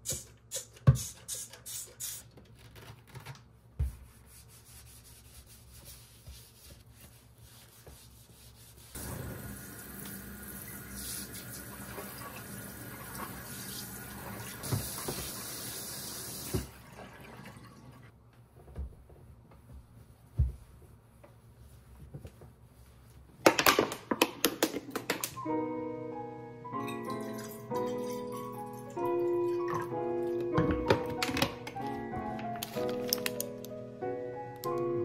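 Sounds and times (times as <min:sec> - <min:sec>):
tap running water into sink: 0:09.0 - 0:17.4.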